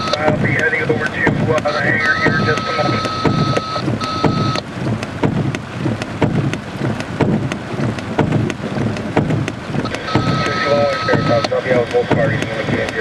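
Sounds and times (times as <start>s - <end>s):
rain on a car roof: 0.0s - 13.0s.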